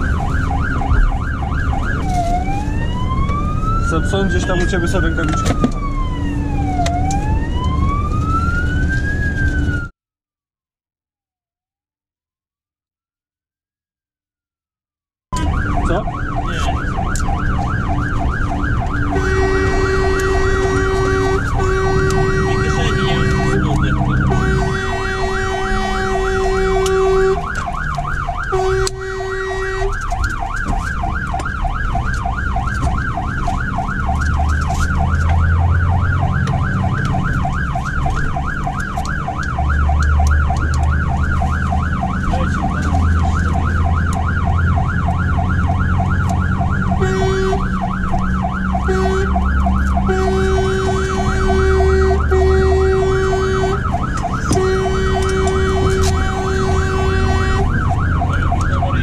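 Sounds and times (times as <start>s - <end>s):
fire engine siren yelping: 0.0s - 9.9s, 15.3s - 59.0s
engine low drone: 15.4s - 59.0s
horn blasts: 19.0s - 27.6s, 28.5s - 30.0s, 47.0s - 47.8s, 48.8s - 57.8s.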